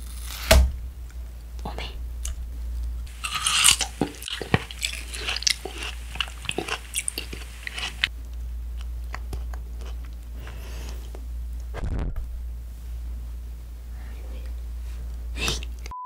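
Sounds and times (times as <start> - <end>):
close chewing with crunches: 3.1 - 8.1, 8.7 - 11.2.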